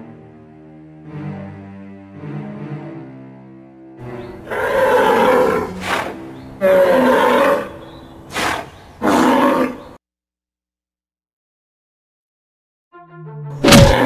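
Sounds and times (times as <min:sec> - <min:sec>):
animal roars: 0:04.5 - 0:10.0, 0:13.7 - 0:14.0.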